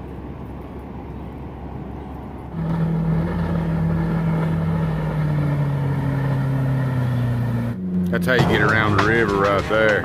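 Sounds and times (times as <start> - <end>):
outboard motor droning: 1.8 - 10.0.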